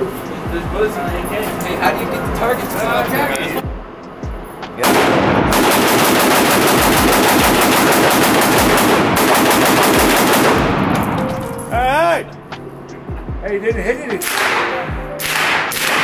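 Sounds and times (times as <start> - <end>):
rapid gunfire: 4.8 - 11.2, 14.2 - 16.0.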